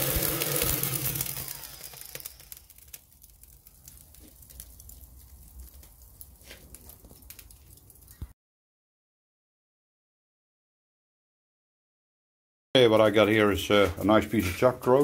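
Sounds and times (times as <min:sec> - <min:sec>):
hot-air lighter blower: 0:00.0 - 0:03.0
charcoal crackling and popping: 0:00.0 - 0:08.4, 0:12.8 - 0:15.0.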